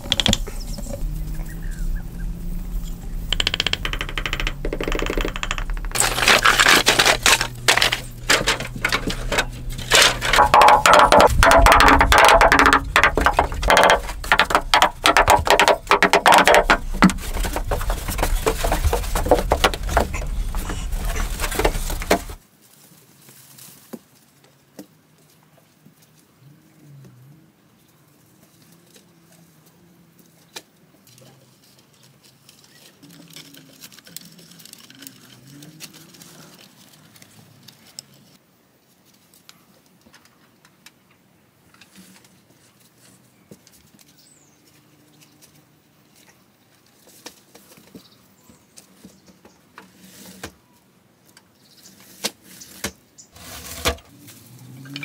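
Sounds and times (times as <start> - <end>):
wooden sticks clicking and knocking: 0.0 - 0.6, 3.3 - 22.4.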